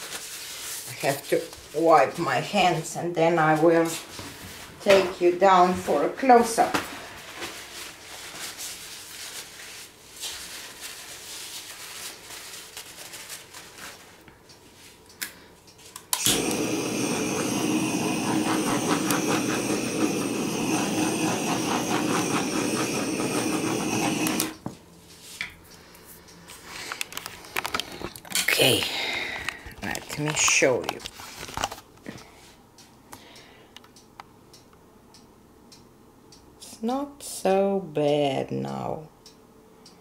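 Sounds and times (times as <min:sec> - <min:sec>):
gas torch flame hissing: 0:16.1 - 0:24.6.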